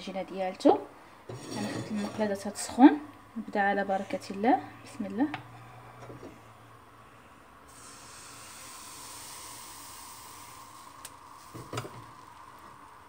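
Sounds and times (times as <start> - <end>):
batter sizzling in a hot pan: 7.7 - 12.8.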